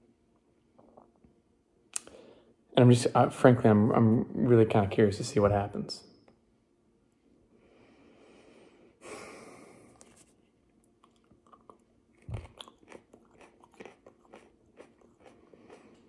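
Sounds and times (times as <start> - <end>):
chewing and crunching pepper: 9.9 - 16.0.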